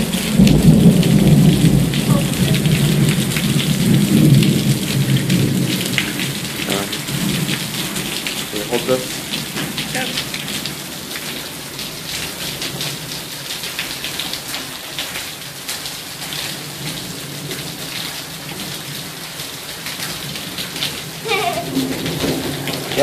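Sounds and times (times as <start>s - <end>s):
heavy rain on pavement: 0.0s - 23.0s
raindrops ticking close by: 0.0s - 23.0s.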